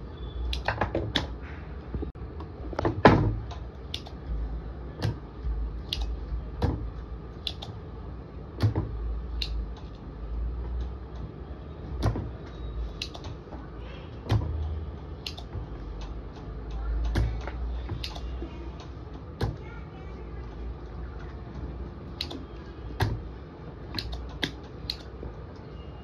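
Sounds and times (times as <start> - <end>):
low steady hum: 0.0 - 26.0
desoldering pump clicking: 0.5 - 1.4, 2.4 - 4.4, 5.0 - 7.8, 8.6 - 10.0, 12.0 - 19.7, 20.8 - 23.3, 23.9 - 25.7.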